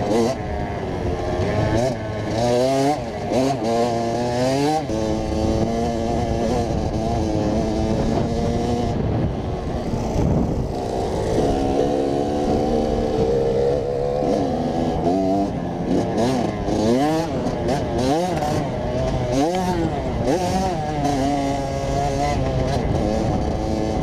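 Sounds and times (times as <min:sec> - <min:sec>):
two-stroke engine revving: 0:00.0 - 0:24.0
rough rushing noise: 0:04.8 - 0:24.0.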